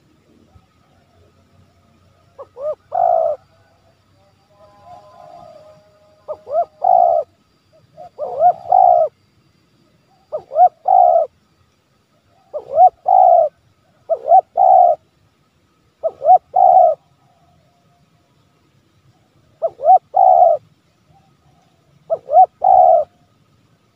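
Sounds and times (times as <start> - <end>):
dove cooing: 2.2 - 3.6, 4.8 - 9.1, 10.1 - 11.3, 12.3 - 15.0, 16.0 - 17.5, 19.6 - 23.2.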